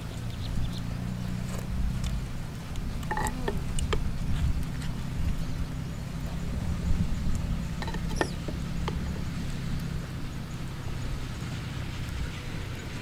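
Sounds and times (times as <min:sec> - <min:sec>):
metal spoon stirring in pot: 0:03.0 - 0:03.6, 0:07.8 - 0:08.6.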